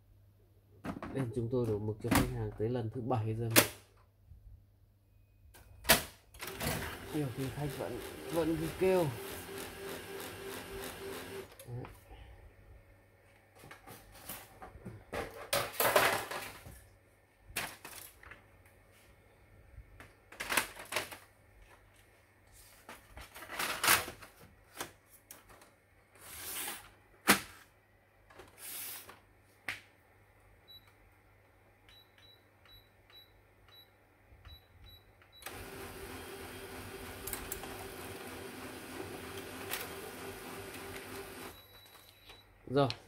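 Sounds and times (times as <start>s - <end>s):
laser printer printing: 6.4s - 11.5s, 35.4s - 41.6s.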